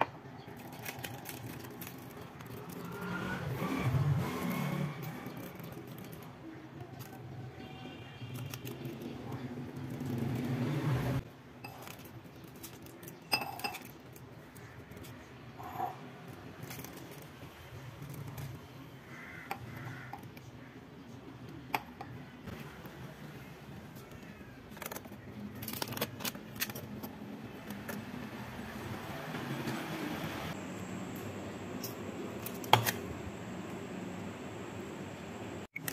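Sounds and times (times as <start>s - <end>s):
plastic wrapper rustling in a glass: 0.5s - 3.1s
steel tumbler clinking on glass: 13.3s - 13.9s.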